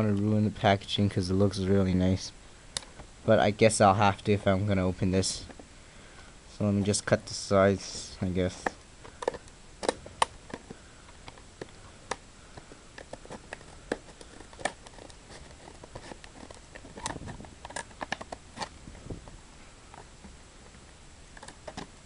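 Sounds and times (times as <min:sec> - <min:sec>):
plastic clicks and snaps: 0:02.7 - 0:03.1, 0:08.6 - 0:18.8, 0:21.4 - 0:21.9
scissors cutting plastic: 0:13.0 - 0:18.8.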